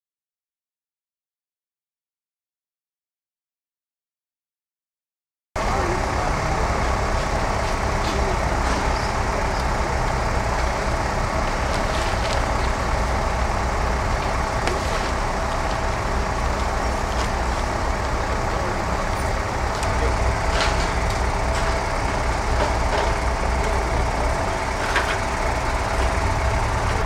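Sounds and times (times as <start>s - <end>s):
road traffic rumble: 5.6s - 27.0s.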